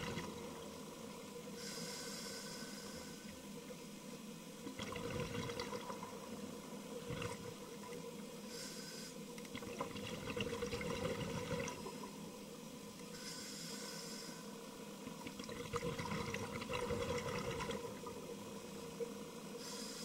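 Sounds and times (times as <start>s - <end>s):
exhaled bubbles gurgling underwater: 0.0s - 1.4s, 4.6s - 8.2s, 9.4s - 12.2s, 15.0s - 19.4s
regulator hissing inhale: 1.5s - 3.4s, 8.4s - 9.4s, 13.0s - 14.8s, 19.5s - 20.0s.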